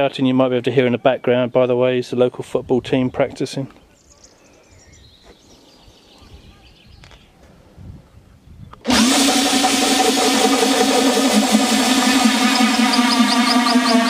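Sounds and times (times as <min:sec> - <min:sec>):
loud electronic music: 0:08.9 - 0:14.0.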